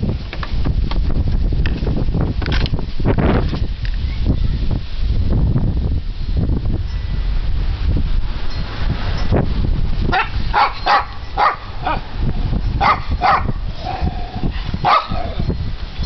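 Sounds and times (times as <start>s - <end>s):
dogs barking: 10.1s - 12.1s, 12.8s - 15.5s.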